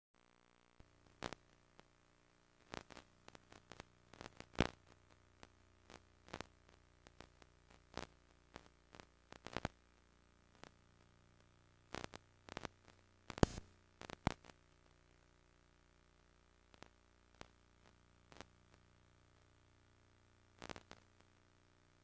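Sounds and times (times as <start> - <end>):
low steady hum: 0.2 - 22.0
tape clicks and pops: 13.3 - 14.5.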